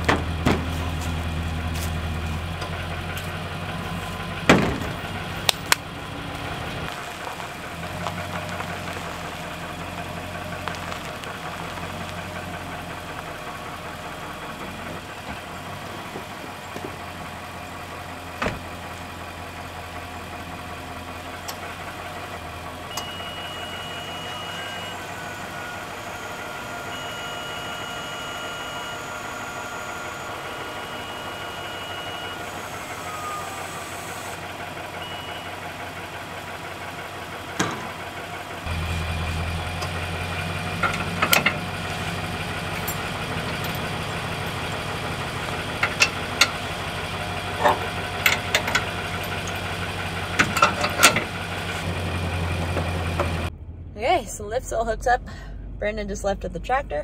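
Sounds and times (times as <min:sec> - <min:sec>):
truck engine idling: 0:00.0 - 0:57.0
metallic clicks and clanks: 0:45.6 - 0:46.7, 0:47.5 - 0:49.8, 0:50.4 - 0:51.3.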